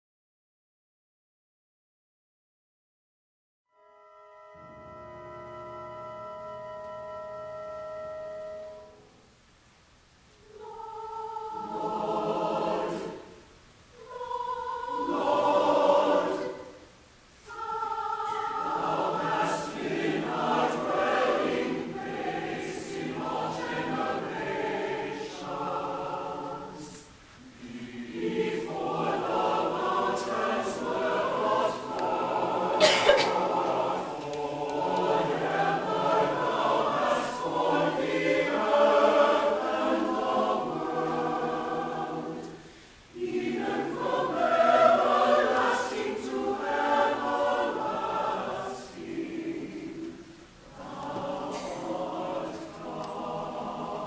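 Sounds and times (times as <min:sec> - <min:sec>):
orchestra playing: 0:03.7 - 0:09.2
mixed choir singing: 0:10.4 - 0:54.0.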